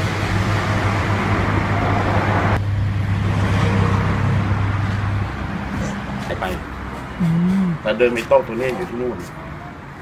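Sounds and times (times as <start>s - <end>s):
low engine hum: 0.0s - 8.0s
road traffic rushing: 0.0s - 10.0s.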